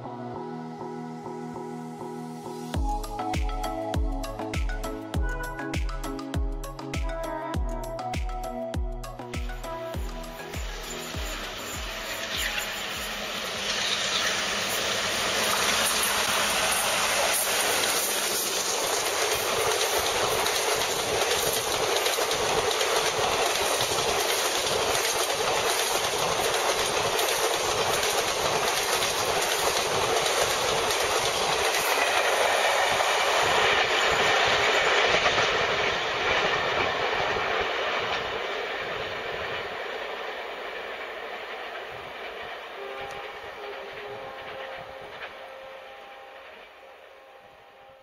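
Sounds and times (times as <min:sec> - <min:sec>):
train wheels clattering over rail joints: 0:11.2 - 0:45.4.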